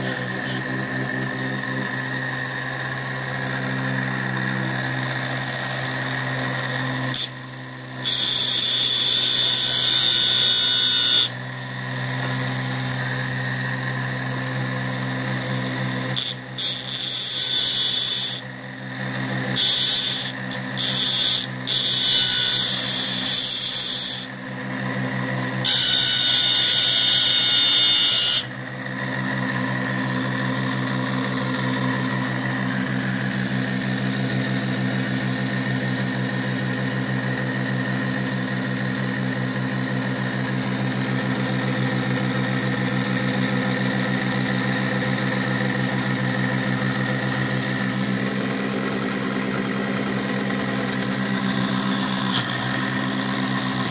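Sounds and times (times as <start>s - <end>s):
electric motor humming: 0.0s - 34.4s, 46.8s - 53.9s.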